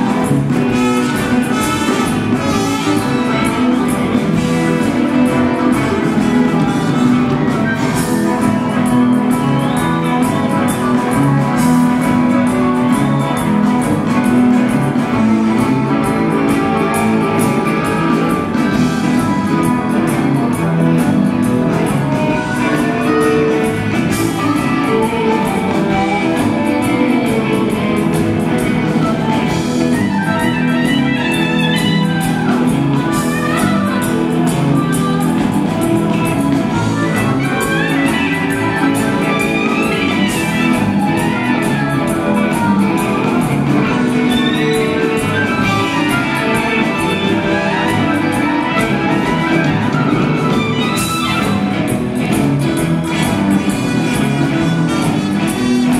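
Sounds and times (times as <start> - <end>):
electric guitars: 0.0 - 55.9
steady drum beat: 0.0 - 55.9.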